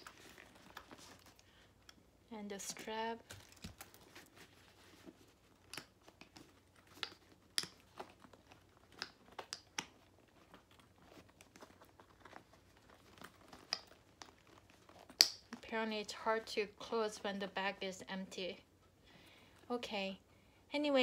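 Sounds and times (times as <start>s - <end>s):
handbag rustling: 10.0s - 15.6s.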